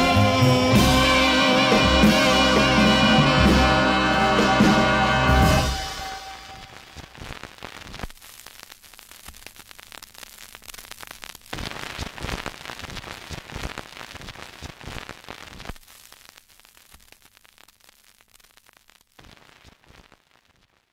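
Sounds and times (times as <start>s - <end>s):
crackling static hiss with clicks: 5.7s - 20.9s.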